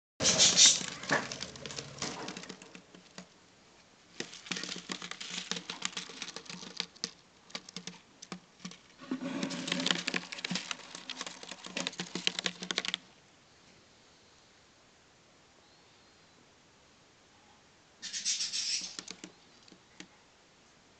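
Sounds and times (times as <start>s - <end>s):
claws scratching in wooden box: 0.2s - 3.3s, 4.2s - 13.0s, 18.3s - 19.8s.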